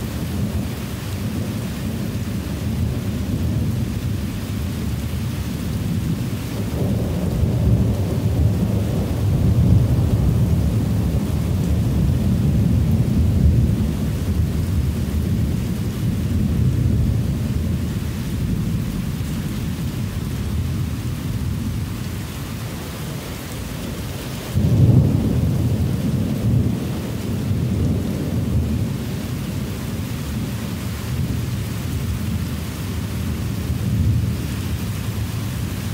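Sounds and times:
heavy rain hissing: 0.0 - 35.9
thunder rumbling: 0.0 - 35.9
thunder clap: 24.5 - 29.0.

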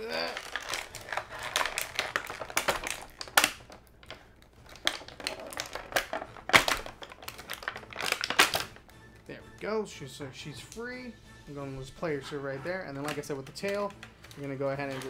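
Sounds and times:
plastic packaging crinkling: 0.0 - 8.9, 12.9 - 15.0.

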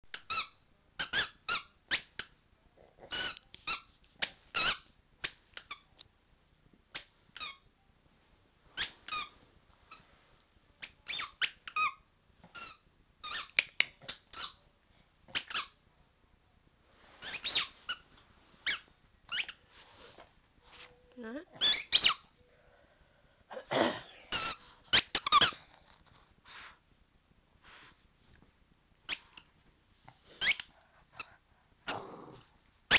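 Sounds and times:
squeaky toy squeaking: 0.1 - 2.1, 3.1 - 4.9, 10.8 - 13.7, 14.3 - 14.6, 15.3 - 15.8, 17.2 - 18.0, 18.6 - 19.7, 21.6 - 22.3, 24.3 - 25.6, 30.4 - 31.3.

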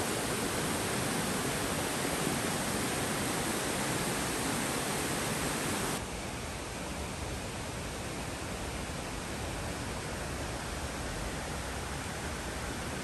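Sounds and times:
stream rushing over cascades: 0.0 - 6.0.

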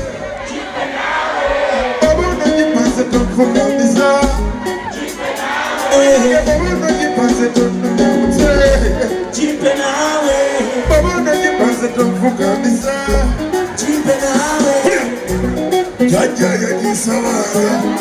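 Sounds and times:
guitar: 1.7 - 18.0
deep bass notes: 2.0 - 4.6, 6.0 - 9.3, 10.8 - 13.6, 15.1 - 16.2
person singing: 2.0 - 18.0.

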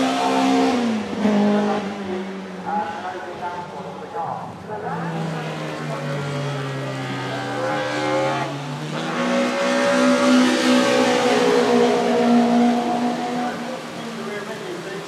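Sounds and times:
race car engine accelerating: 0.0 - 3.0, 4.9 - 15.0
tyres hissing on wet track: 7.0 - 15.0.

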